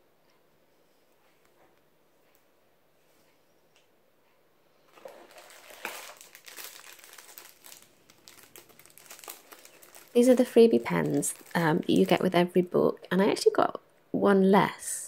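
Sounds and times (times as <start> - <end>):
plastic sleeves crinkling: 4.9 - 12.6.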